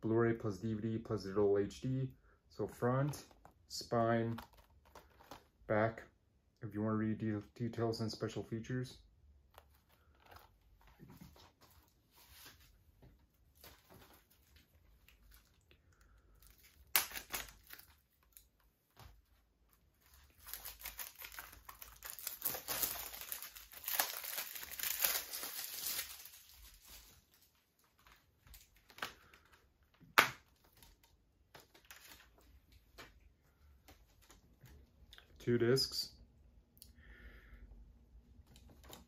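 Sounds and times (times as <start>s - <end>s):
plastic wrap tearing and crinkling: 4.3s - 5.5s, 16.3s - 18.5s, 19.9s - 29.6s.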